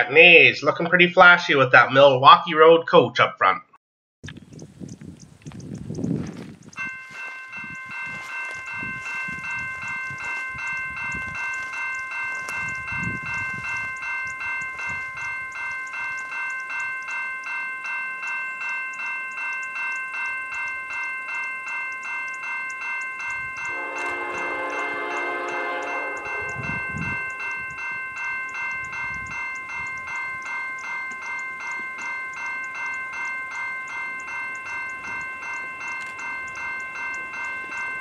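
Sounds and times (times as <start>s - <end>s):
railway crossing warning bell: 6.6s - 38.0s
locomotive air horn: 23.7s - 27.2s.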